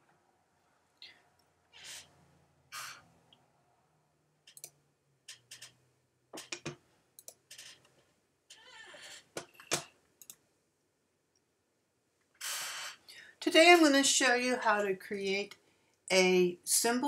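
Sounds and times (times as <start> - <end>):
computer mouse clicks: 4.5 - 5.7, 6.4 - 7.4, 9.6 - 10.4.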